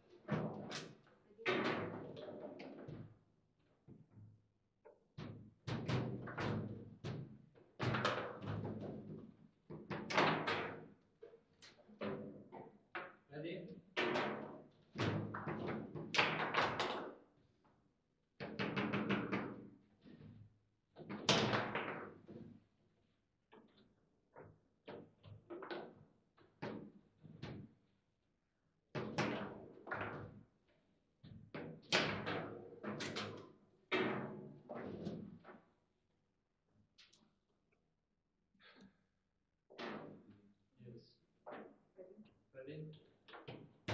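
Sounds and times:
foosball ball and rods clacking: 14.0 - 17.3, 18.4 - 19.8, 21.1 - 22.3, 31.6 - 35.6, 39.8 - 40.3.

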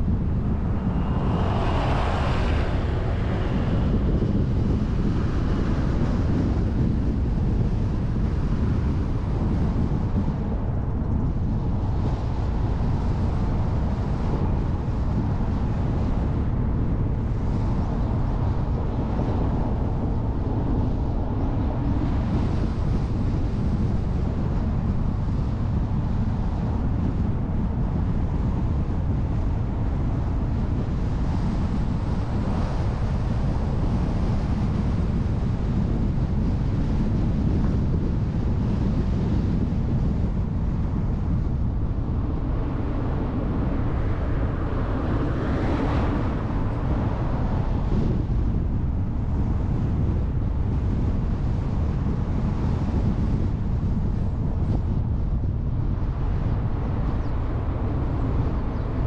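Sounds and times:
car driving road noise: 0.0 - 7.9
wind on microphone: 0.0 - 59.0.

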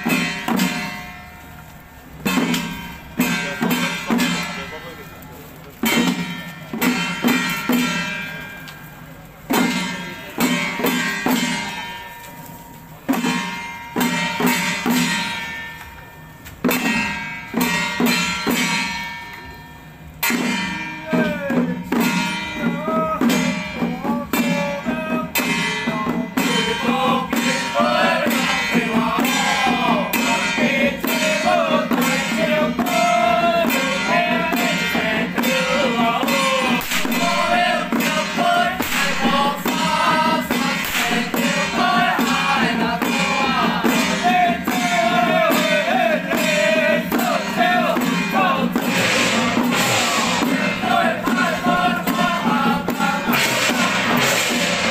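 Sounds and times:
troupe chanting: 0.0 - 1.4, 20.2 - 54.9
ringing percussion strikes: 0.0 - 54.9.

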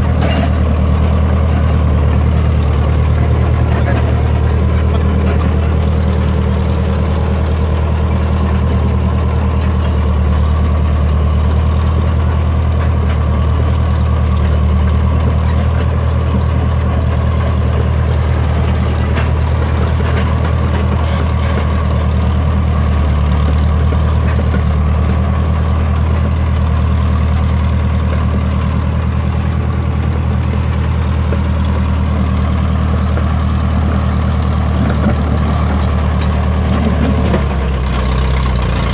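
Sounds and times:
dozer diesel engine droning: 0.0 - 38.9.

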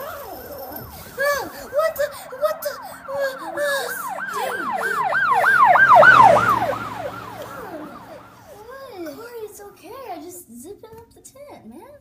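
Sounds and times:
emergency siren yelp: 0.0 - 9.2.

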